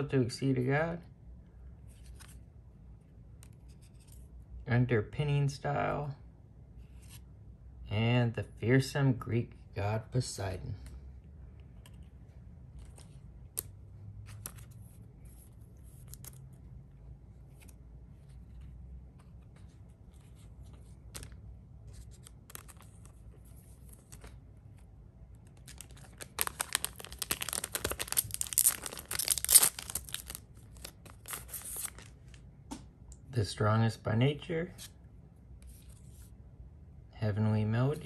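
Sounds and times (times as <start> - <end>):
foil wrapper crinkling and tearing: 25.6 - 32.1.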